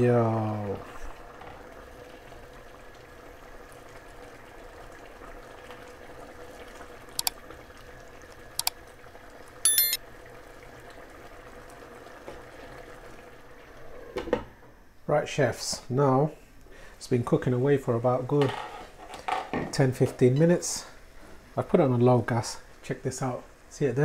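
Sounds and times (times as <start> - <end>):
curry bubbling in a pan: 1.1 - 9.5, 10.2 - 14.3
short ringing chime: 9.7 - 10.0.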